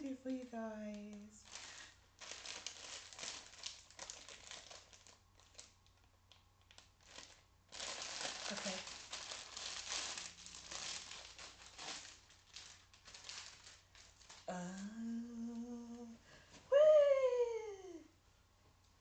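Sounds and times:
woman humming: 0.0 - 1.4, 14.5 - 18.1
plastic packaging crinkling: 0.0 - 14.6.

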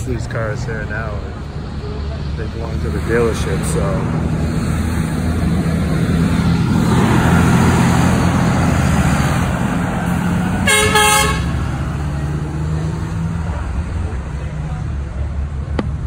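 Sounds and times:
truck diesel engines running: 0.0 - 16.0
truck horn blast: 10.6 - 11.7.

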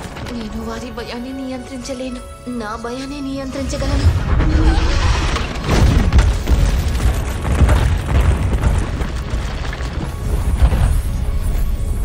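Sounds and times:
deep booming rumble: 3.8 - 11.6
crashing impacts: 4.1 - 11.9
concrete breaking up: 4.8 - 11.6.

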